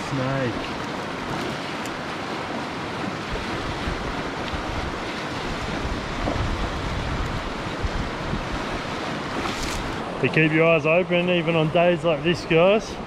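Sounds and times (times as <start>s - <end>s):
creek flowing over rocks: 0.0s - 13.0s
wind gusting on microphone: 2.2s - 10.3s.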